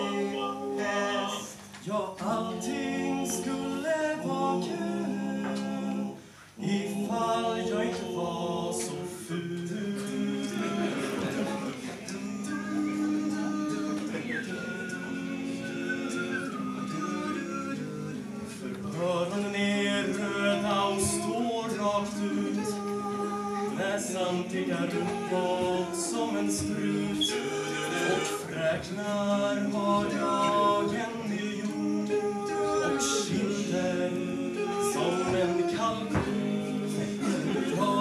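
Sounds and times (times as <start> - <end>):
male vocal quartet singing: 0.0 - 38.0.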